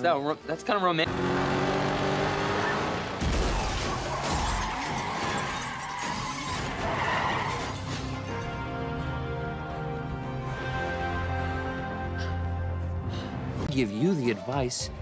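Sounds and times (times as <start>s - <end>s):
glass and metal shattering: 3.2s - 8.5s
film soundtrack music: 6.7s - 15.0s.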